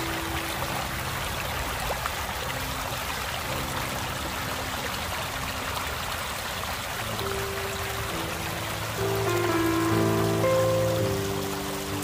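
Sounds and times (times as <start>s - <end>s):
stream babbling over pebbles: 0.0s - 12.0s.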